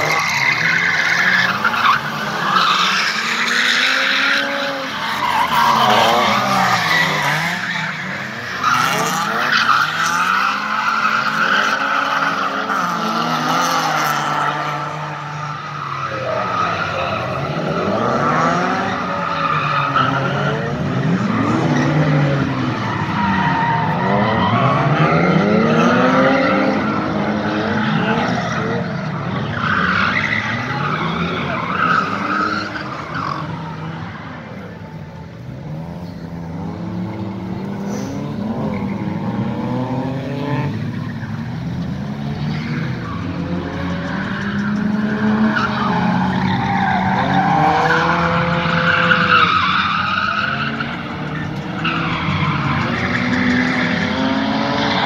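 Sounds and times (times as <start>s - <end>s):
car engine revving: 0.0s - 55.0s
tyres squealing: 42.5s - 55.0s.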